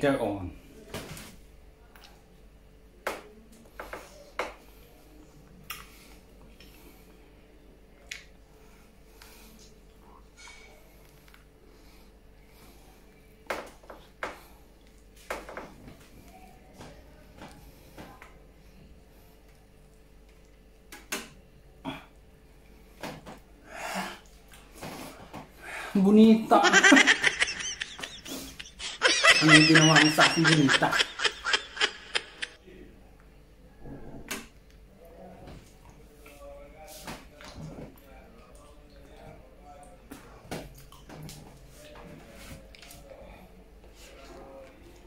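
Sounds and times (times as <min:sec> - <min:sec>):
wet mouth smacks and clicks: 0:08.1 - 0:08.3.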